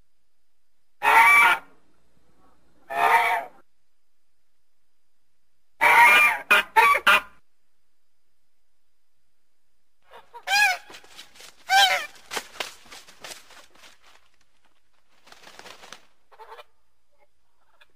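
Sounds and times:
goose honking: 0:01.0 - 0:01.7, 0:05.8 - 0:07.4, 0:10.1 - 0:12.3.

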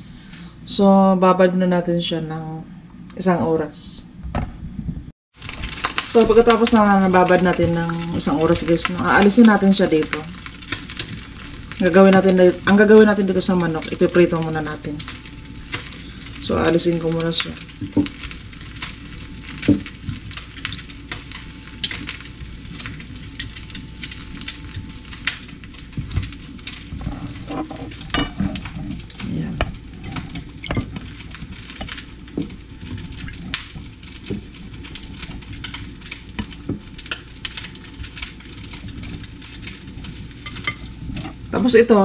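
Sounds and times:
marinade dripping: 0:05.4 - 0:42.0.

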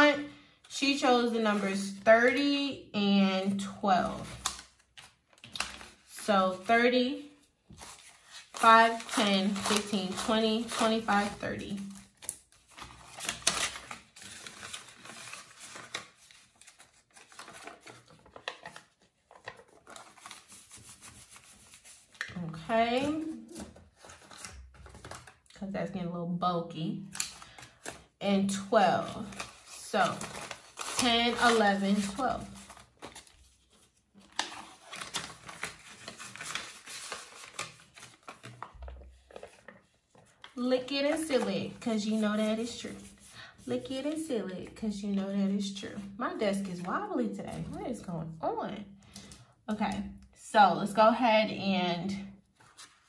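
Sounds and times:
paper money rustling: 0:07.8 - 0:25.4, 0:27.1 - 0:44.3.

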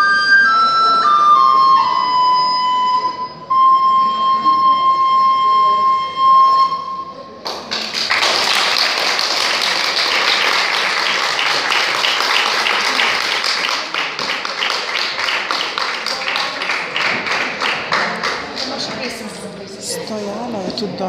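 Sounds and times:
audience applauding: 0:07.4 - 0:19.3.

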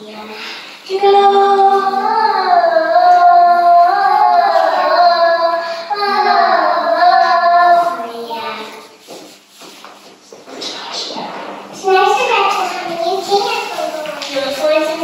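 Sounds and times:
children singing a slow song: 0:00.0 - 0:08.3.

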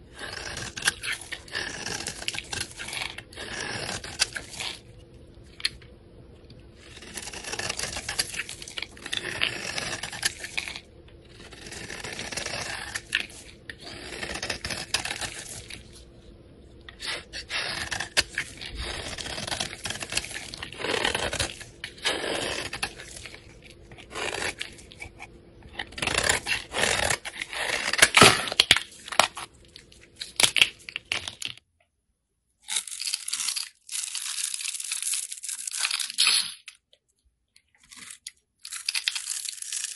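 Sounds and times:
knife scraping soap: 0:00.1 - 0:05.0, 0:06.7 - 0:16.0, 0:16.8 - 0:29.5.

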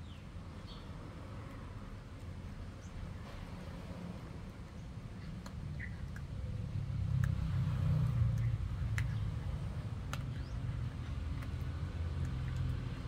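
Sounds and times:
puppy chewing a bone: 0:04.6 - 0:13.0
teeth cracking on bone: 0:07.0 - 0:07.6, 0:08.3 - 0:13.0.

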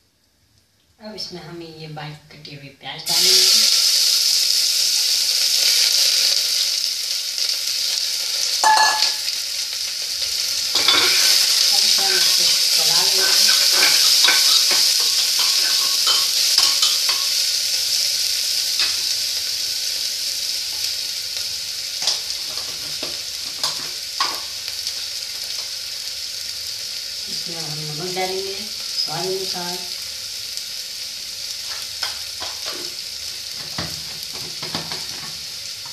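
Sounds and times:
onions sizzling in oil: 0:02.8 - 0:35.9
spatula scraping pot: 0:12.1 - 0:17.3.

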